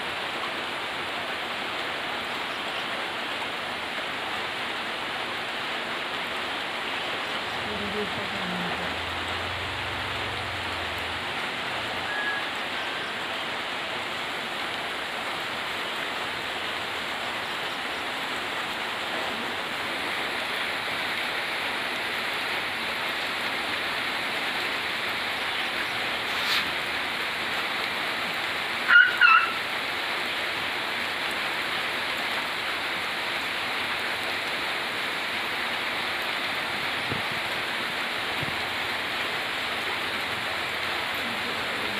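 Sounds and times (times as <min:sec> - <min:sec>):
rain hissing: 0:00.0 - 0:41.9
brief high call: 0:28.9 - 0:29.6.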